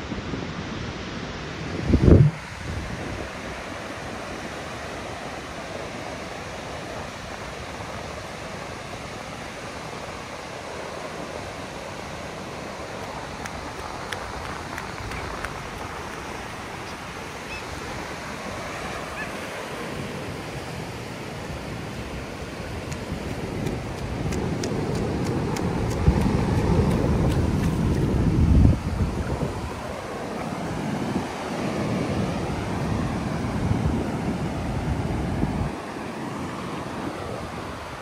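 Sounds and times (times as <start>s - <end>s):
ocean surf: 0.0s - 38.0s
wind buffeting microphone: 1.5s - 4.7s, 12.8s - 38.0s.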